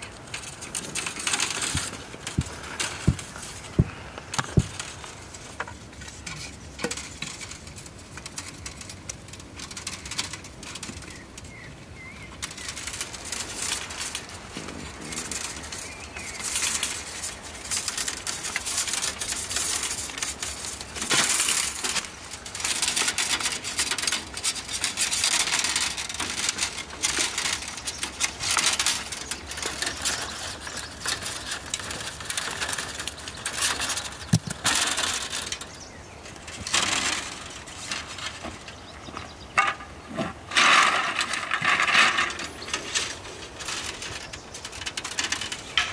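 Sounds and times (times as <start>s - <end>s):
wire rasping on bamboo cane: 12.4s - 35.7s.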